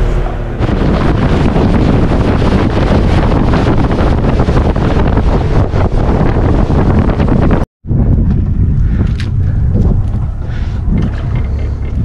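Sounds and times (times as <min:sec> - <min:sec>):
motorboat engine: 0:00.0 - 0:07.6, 0:09.8 - 0:12.0
water rushing past hull: 0:00.0 - 0:07.6
wind buffeting microphone: 0:00.0 - 0:12.0.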